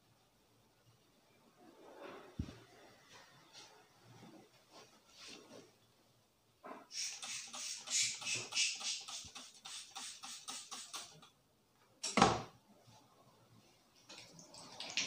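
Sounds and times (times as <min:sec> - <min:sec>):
spray bottle hissing spurts: 0:06.9 - 0:11.3.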